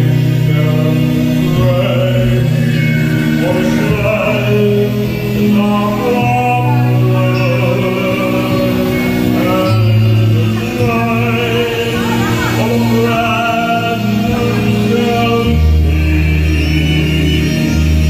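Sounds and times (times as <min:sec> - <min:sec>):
instrumental backing with bass: 0:00.0 - 0:18.0
man singing into microphone: 0:00.0 - 0:18.0.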